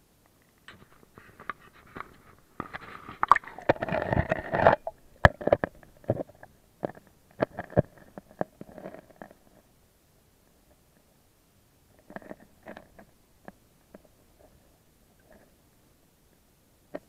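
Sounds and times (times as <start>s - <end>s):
water sloshing and gurgling: 2.6s - 6.3s.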